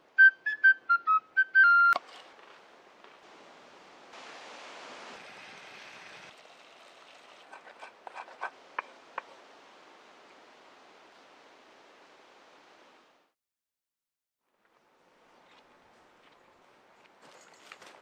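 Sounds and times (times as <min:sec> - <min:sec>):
woodland ambience: 0:00.0 - 0:04.0, 0:14.4 - 0:18.0.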